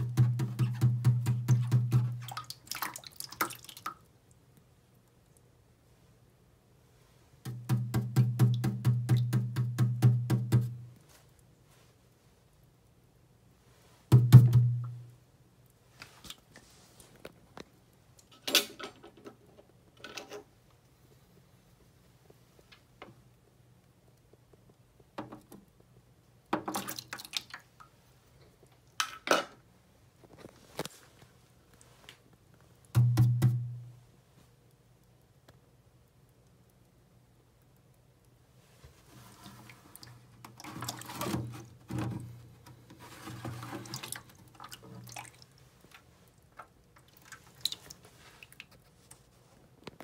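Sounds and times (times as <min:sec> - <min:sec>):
water splashing in plastic tub: 0:00.0 - 0:04.0, 0:07.5 - 0:10.8, 0:26.6 - 0:27.8, 0:39.3 - 0:42.4, 0:43.0 - 0:48.8
small clicks and drips: 0:02.2 - 0:05.5, 0:22.6 - 0:29.1, 0:42.3 - 0:50.0.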